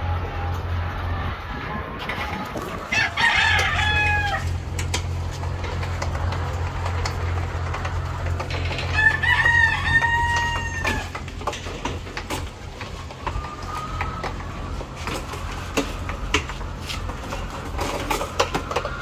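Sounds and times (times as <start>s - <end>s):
rooster crowing: 0.0s - 4.6s, 8.7s - 11.2s
steady low hum: 0.0s - 19.0s
plastic egg trays clicking: 3.3s - 19.0s.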